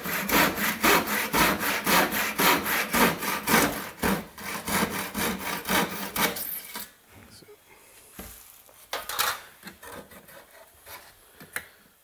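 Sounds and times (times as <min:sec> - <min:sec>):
handsaw cutting wood: 0:00.0 - 0:06.6.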